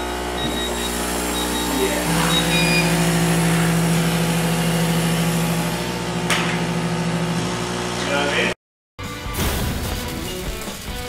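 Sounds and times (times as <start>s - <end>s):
laser cutter humming: 0.0s - 8.0s.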